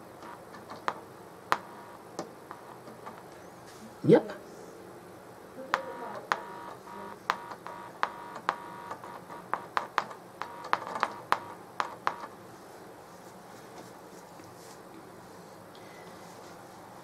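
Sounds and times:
loudspeaker pops with buzz: 5.8s - 12.2s.

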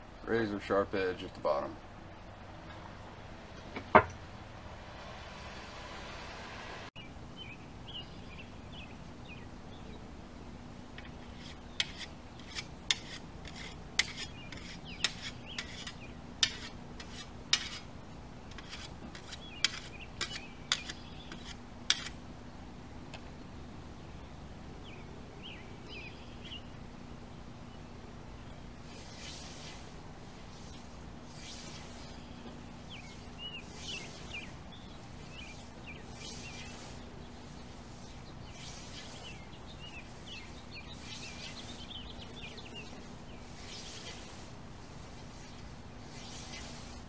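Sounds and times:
scythe cutting grass: 11.0s - 22.2s, 28.7s - 47.0s.

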